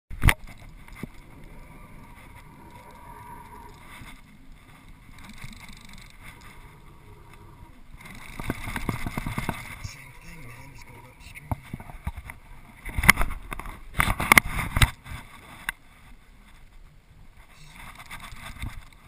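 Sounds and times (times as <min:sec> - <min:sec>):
rapid irregular reel clicks: 0:00.1 - 0:11.0
fishing reel handling noise: 0:00.2 - 0:15.0, 0:17.7 - 0:19.0.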